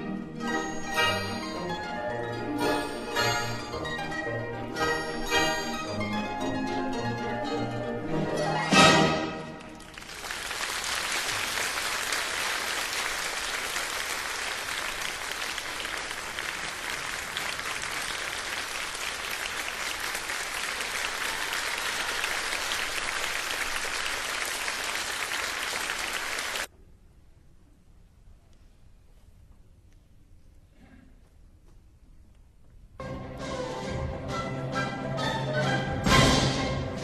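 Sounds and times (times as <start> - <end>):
audience applauding: 9.5 - 26.7.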